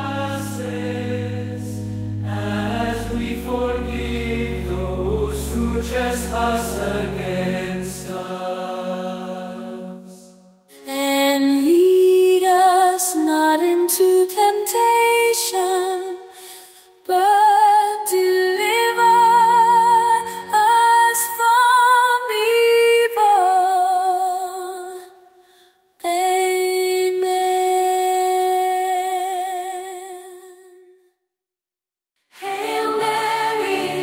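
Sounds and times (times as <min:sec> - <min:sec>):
woman singing slow melody: 0:10.7 - 0:16.4, 0:17.0 - 0:25.1, 0:26.0 - 0:30.9.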